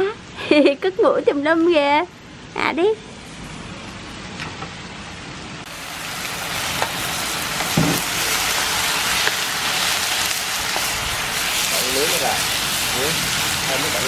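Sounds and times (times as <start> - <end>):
meat sizzling in hot oil: 5.6 - 14.0.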